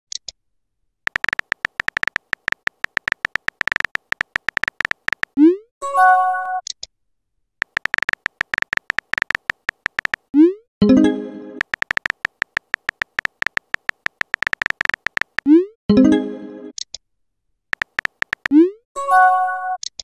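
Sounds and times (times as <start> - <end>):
phone keyboard tapping clicks: 1.1 - 5.4, 7.6 - 10.3, 11.6 - 15.5, 17.8 - 18.6.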